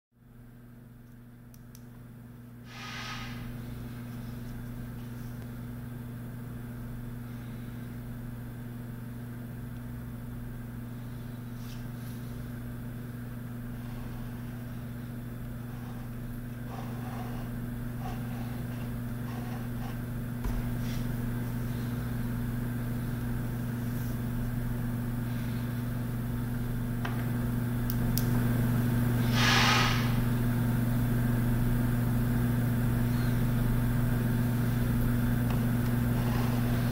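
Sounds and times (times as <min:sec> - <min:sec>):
low hum: 0:00.3 - 0:36.9
brief hiss: 0:02.7 - 0:03.5, 0:29.3 - 0:30.2.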